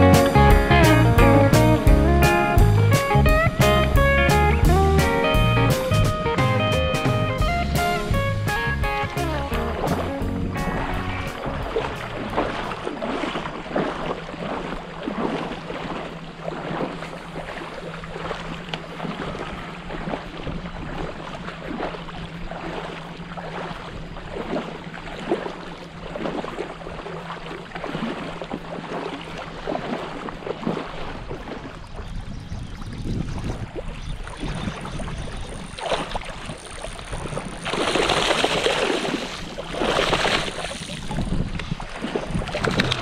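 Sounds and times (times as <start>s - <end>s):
wind buffeting microphone: 0.0s - 16.0s, 29.8s - 43.0s
water splashing from wading: 0.0s - 43.0s.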